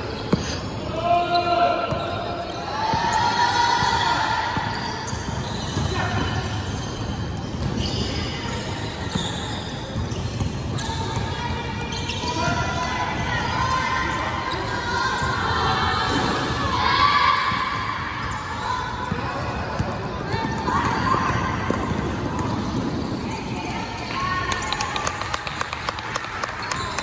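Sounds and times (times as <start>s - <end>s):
children's voices and shouts: 11.0s - 19.0s, 20.3s - 22.0s.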